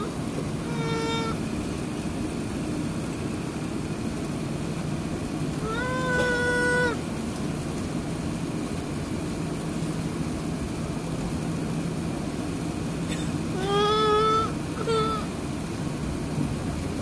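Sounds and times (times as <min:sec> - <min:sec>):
baby crying: 0:00.0 - 0:01.4, 0:05.6 - 0:07.0, 0:13.6 - 0:15.3
cabin engine drone: 0:00.0 - 0:17.0.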